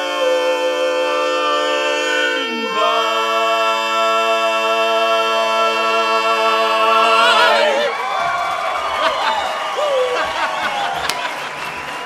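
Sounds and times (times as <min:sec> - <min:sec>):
male voices singing in harmony: 0:00.0 - 0:08.0.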